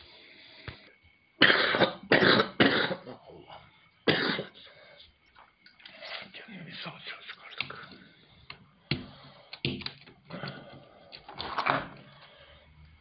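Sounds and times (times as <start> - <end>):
person coughing: 1.4 - 3.2, 4.1 - 4.6.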